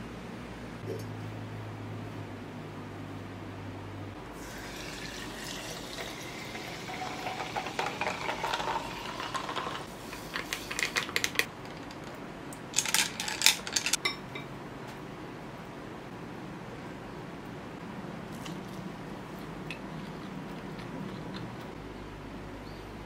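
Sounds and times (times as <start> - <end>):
sparkling water pouring into glass: 4.4 - 9.9.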